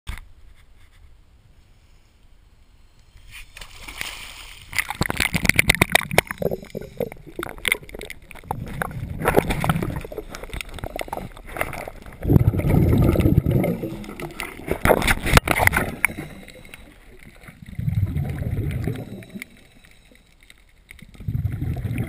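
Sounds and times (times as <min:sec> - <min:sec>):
underwater sloshing and gurgling: 0:03.7 - 0:22.0
rush of bubbles: 0:04.0 - 0:16.8, 0:17.4 - 0:19.4, 0:21.1 - 0:22.0.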